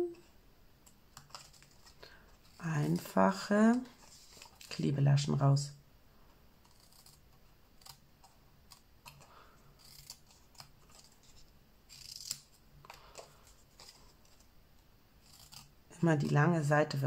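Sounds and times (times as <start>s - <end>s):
scissors snipping paper: 6.6s - 7.2s, 7.8s - 8.0s, 8.6s - 11.3s, 11.9s - 14.0s, 15.2s - 16.3s.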